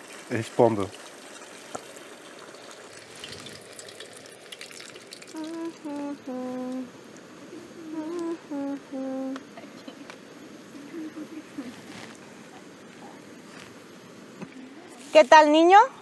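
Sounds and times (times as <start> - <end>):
steady background hiss: 0.0 - 16.0
person humming a tune: 5.3 - 6.9, 7.5 - 9.4.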